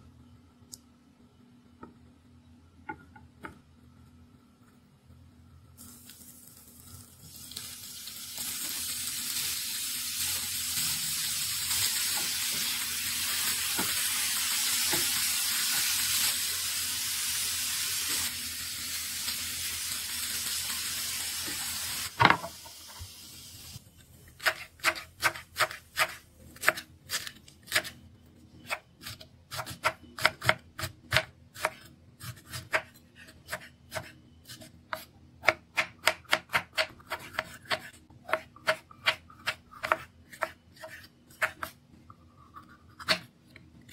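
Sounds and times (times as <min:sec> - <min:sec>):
chicken sizzling in a frying pan: 0:05.8 - 0:23.8.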